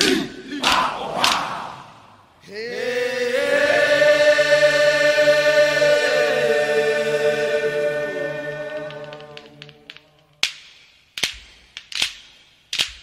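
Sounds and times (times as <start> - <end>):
group of voices holding a note: 0.0 - 10.2.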